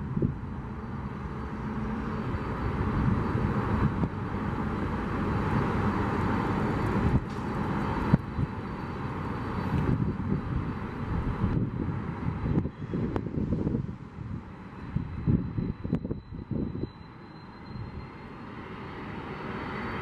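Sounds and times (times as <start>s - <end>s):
jet engines whining: 15.2s - 20.0s.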